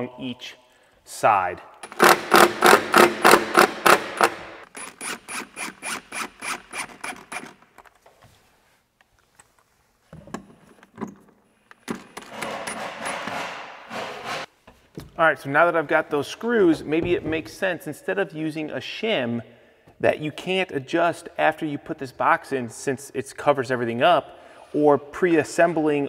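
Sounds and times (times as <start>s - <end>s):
cordless driver driving screws: 1.8s - 7.7s.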